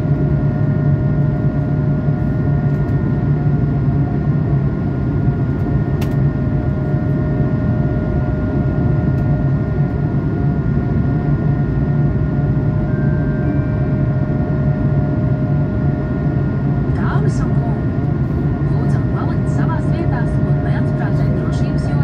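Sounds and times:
airplane cabin rumble: 0.0s - 22.0s
steady whining tones: 4.8s - 22.0s.

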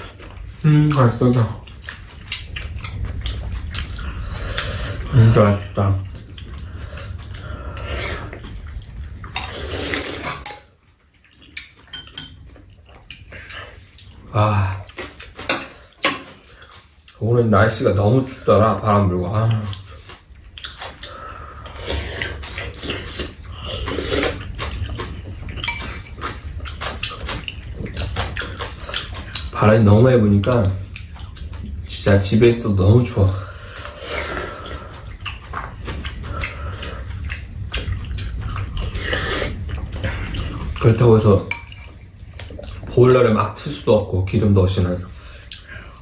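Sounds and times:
slurping and chewing soup: 0.0s - 46.0s
wet slurping of broth: 9.4s - 10.4s
spoons scraping and clinking in bowls: 11.9s - 12.4s, 25.6s - 26.2s, 41.5s - 42.0s
utensils clicking on ceramic bowls: 25.6s - 26.0s.

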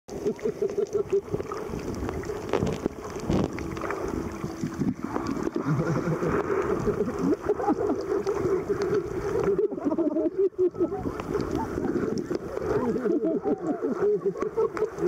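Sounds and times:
water bubbling underwater: 0.1s - 15.0s.

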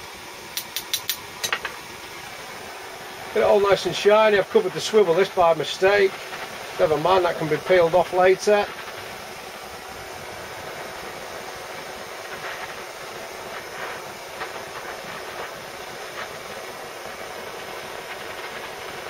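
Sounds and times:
blowtorch hissing: 0.0s - 19.0s.

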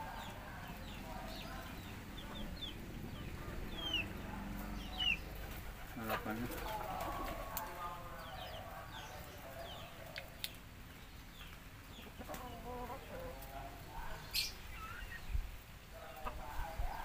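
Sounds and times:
chickens clucking: 0.0s - 17.0s
small birds chirping: 0.0s - 17.0s
clicks of people eating: 9.6s - 11.6s.

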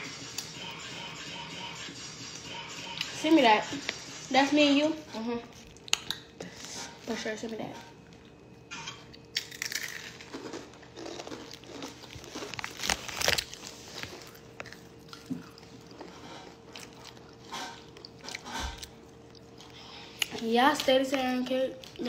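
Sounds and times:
person chewing something crunchy: 0.0s - 1.2s, 2.3s - 3.2s, 5.5s - 7.1s, 8.0s - 20.4s.

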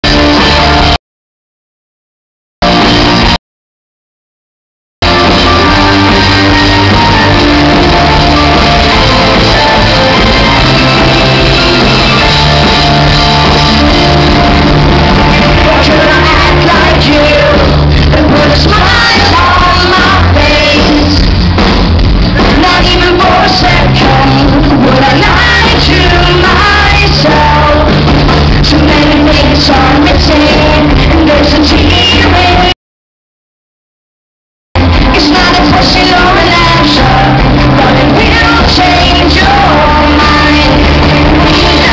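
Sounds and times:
rock band playing live: 0.0s - 1.0s, 2.6s - 3.4s, 5.0s - 32.7s, 34.8s - 41.9s
woman singing lead: 5.1s - 13.1s, 13.8s - 21.3s, 22.4s - 32.8s, 35.0s - 41.9s.

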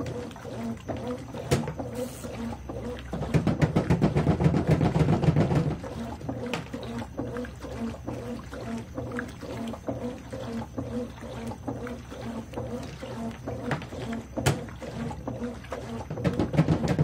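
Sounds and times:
washing machine motor humming: 0.0s - 17.0s
water sloshing: 0.0s - 17.0s.

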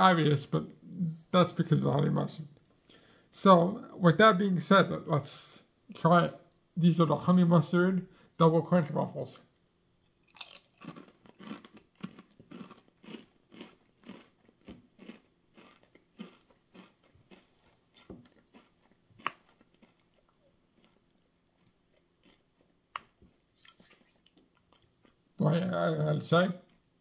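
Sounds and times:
person chewing potato chips: 10.2s - 25.2s.

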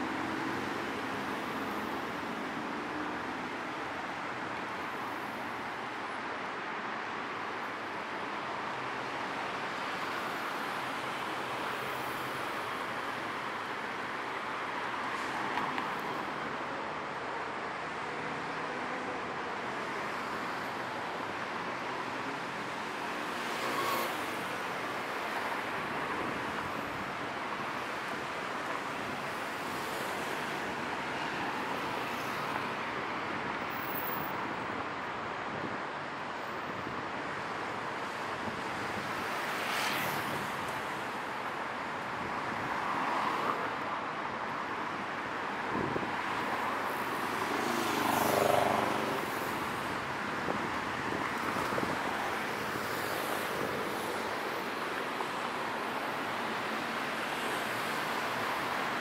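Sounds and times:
cars and motorbikes passing: 23.1s - 27.3s, 45.4s - 59.0s.

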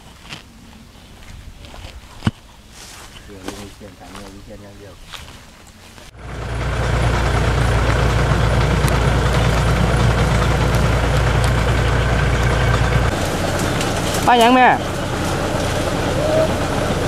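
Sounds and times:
engine running steadily: 6.1s - 17.0s.

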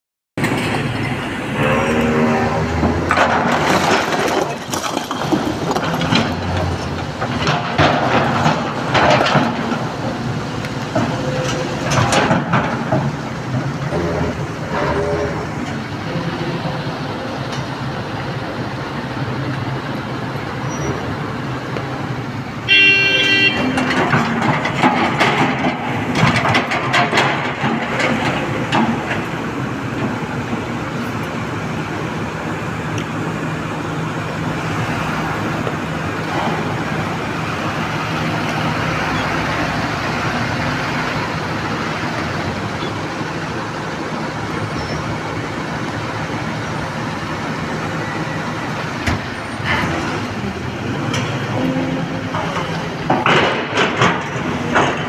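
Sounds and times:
diesel truck engine running: 0.4s - 55.0s
truck horn blast: 1.5s - 3.2s, 22.7s - 23.9s.

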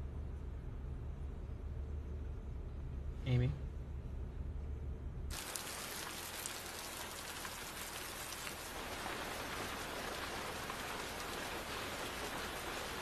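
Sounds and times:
rain on car and puddles: 5.3s - 13.0s.

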